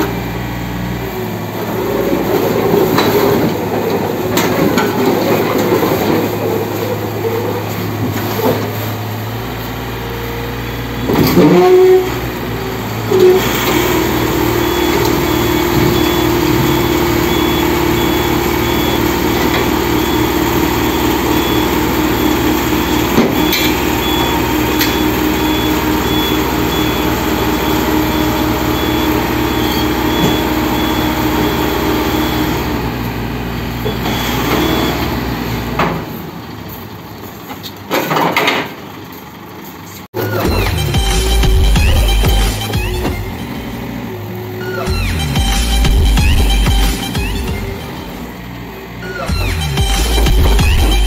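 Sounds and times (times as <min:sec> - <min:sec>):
hydraulic drone: 0:00.0 - 0:36.5, 0:40.2 - 0:51.0
excavator diesel engine running: 0:00.0 - 0:51.0
high repeated beep: 0:40.2 - 0:43.7, 0:44.6 - 0:48.2, 0:49.0 - 0:51.0.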